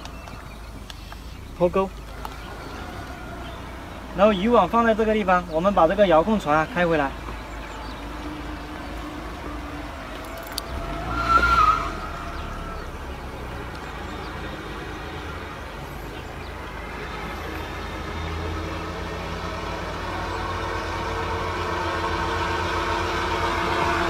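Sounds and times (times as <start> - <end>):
boat motor humming: 0.0 - 24.0.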